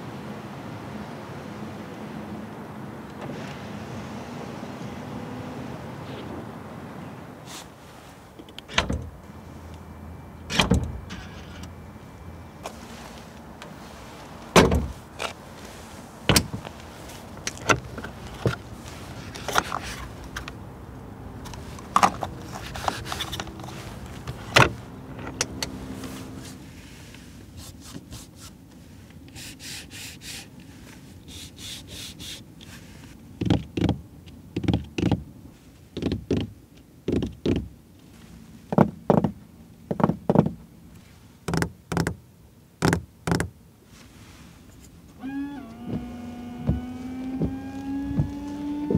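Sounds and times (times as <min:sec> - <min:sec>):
car trunk lid and latch thunks: 0:08.6 - 0:09.2, 0:10.5 - 0:11.2, 0:14.5 - 0:15.3, 0:16.3 - 0:16.7, 0:21.5 - 0:25.9, 0:45.6 - 0:48.9.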